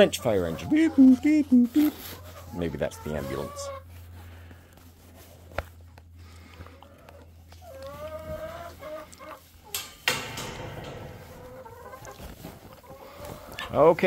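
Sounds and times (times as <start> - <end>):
hens clucking: 0.0 - 4.7, 5.4 - 14.0
rustling: 3.8 - 14.0.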